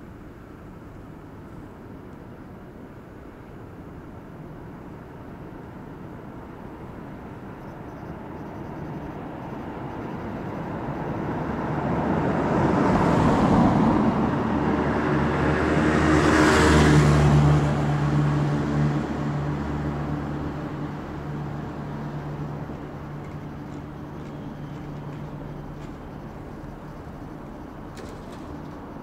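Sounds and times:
low engine hum: 0.0s - 29.0s
traffic: 0.0s - 29.0s
car passing: 9.9s - 29.0s.

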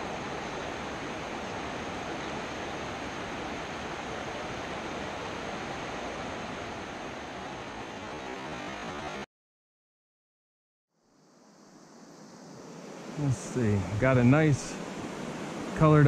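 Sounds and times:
stream flowing over rocks: 0.0s - 9.2s.

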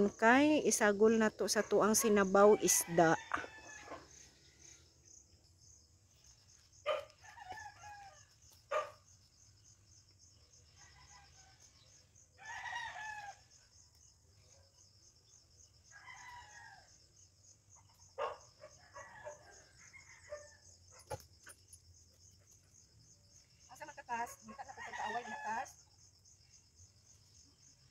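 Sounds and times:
roosters crowing: 2.0s - 4.4s, 6.8s - 8.8s, 10.8s - 13.7s, 15.8s - 17.1s, 18.2s - 21.1s, 24.7s - 25.7s.

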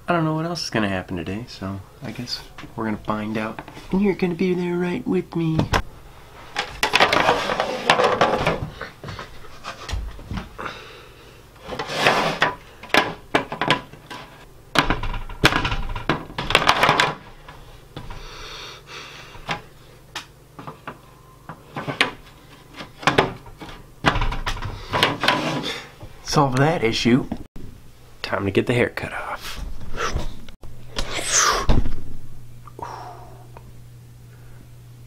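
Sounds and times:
rubbing and rustling: 6.3s - 10.5s, 11.6s - 12.6s
plastic tray pieces knocking: 14.7s - 17.2s.

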